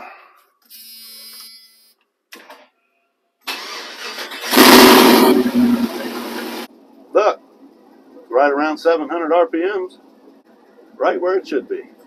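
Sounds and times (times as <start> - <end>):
starter motor cranking: 3.5 - 6.7
truck engine revving and idling: 4.1 - 6.7.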